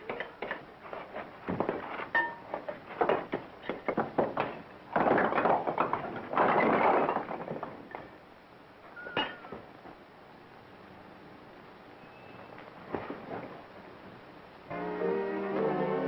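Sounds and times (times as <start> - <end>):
bricks knocking and clattering: 0.0 - 8.2
falling rubble rattling: 0.0 - 9.9.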